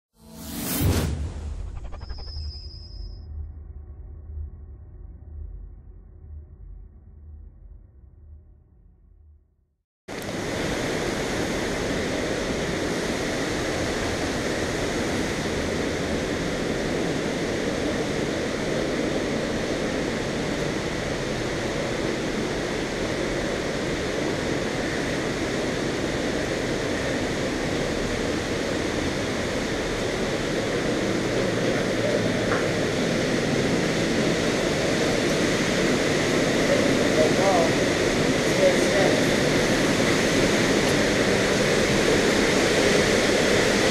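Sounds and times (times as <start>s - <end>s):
waterfall roaring: 10.1s - 43.9s.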